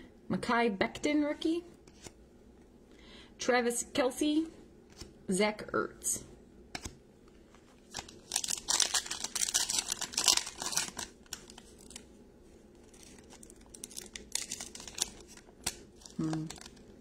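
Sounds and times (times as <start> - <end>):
foil wrapper tearing and crinkling: 7.9 - 12.1, 12.8 - 16.8.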